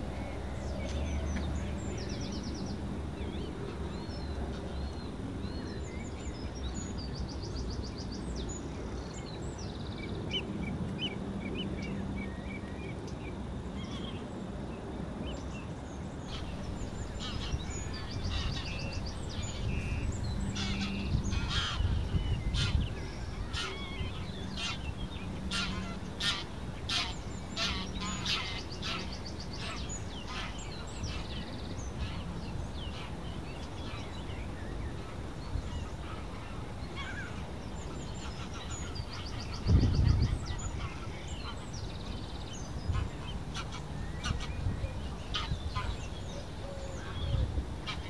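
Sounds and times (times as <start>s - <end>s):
low background rumble: 16.3s - 48.0s.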